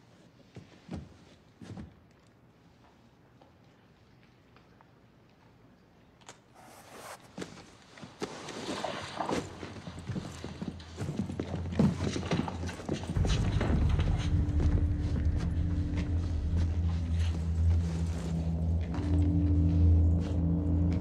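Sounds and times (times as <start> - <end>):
low rumble with held tone: 13.1 - 21.0.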